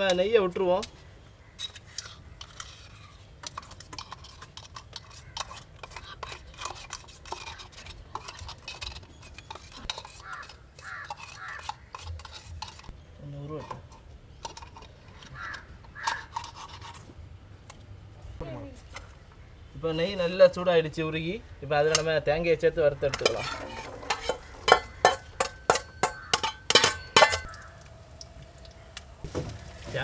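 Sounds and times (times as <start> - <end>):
metallic scraping of a tin: 1.6 - 17.1, 22.9 - 27.6.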